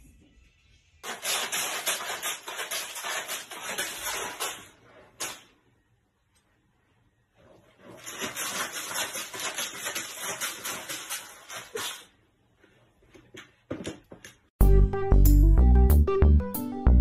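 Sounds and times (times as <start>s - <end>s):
cat scratching litter pellets: 1.0s - 5.5s, 7.7s - 12.2s.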